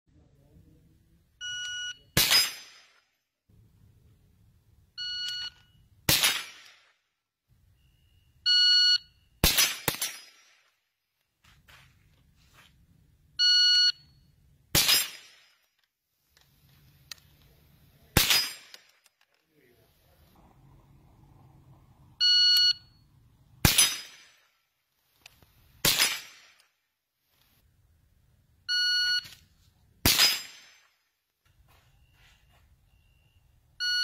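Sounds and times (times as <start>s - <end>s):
shot timer beep: 1.4s - 2.2s, 5.0s - 5.9s, 22.2s - 23.1s
rifle shots: 2.2s - 3.0s, 6.1s - 6.9s, 9.4s - 10.6s, 14.7s - 15.5s, 18.1s - 18.9s, 23.6s - 24.5s, 25.8s - 26.6s, 30.0s - 30.9s.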